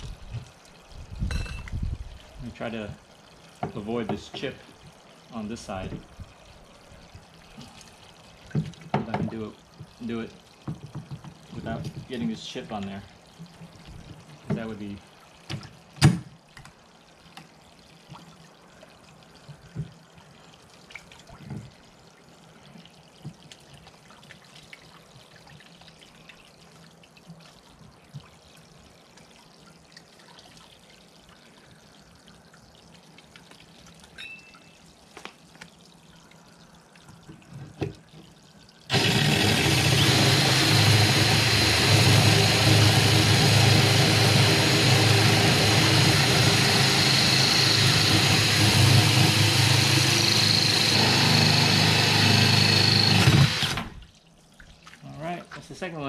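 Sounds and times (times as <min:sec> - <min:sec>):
trickling water: 0:00.0 - 0:56.0
cordless drill boring through glass: 0:38.9 - 0:53.9.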